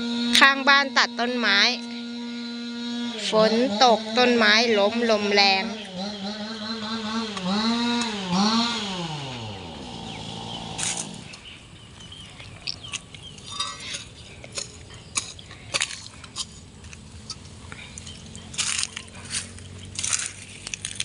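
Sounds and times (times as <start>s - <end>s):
chainsaw running: 0.0s - 12.2s, 12.9s - 21.0s
sharp snaps and crackles: 14.4s - 21.0s.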